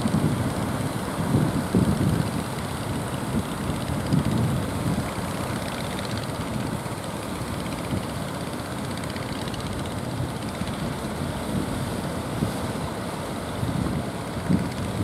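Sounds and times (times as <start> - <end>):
boat engines droning: 0.0 - 15.0
wind buffeting microphone: 0.0 - 15.0.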